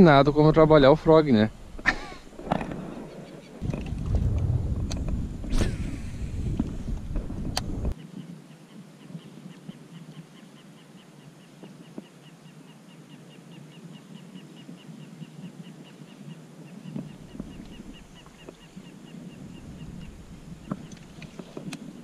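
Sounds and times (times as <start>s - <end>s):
wind rumble on microphone: 2.4s - 8.0s, 17.0s - 22.0s.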